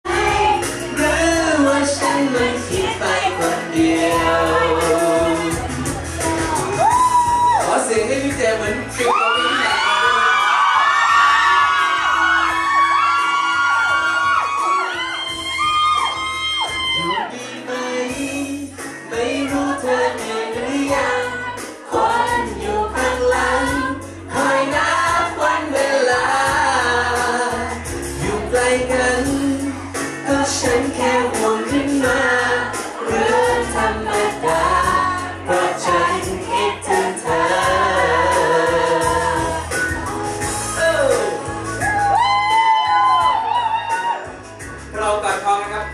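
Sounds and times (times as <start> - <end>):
backing music: 0.0 - 45.9
man singing into microphone: 0.4 - 5.7, 17.0 - 21.5, 22.3 - 39.7.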